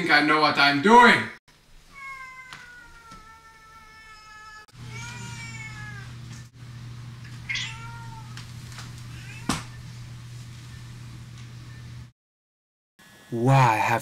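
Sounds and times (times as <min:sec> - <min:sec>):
cat meowing: 0:01.9 - 0:06.3, 0:07.4 - 0:08.5, 0:09.1 - 0:09.8.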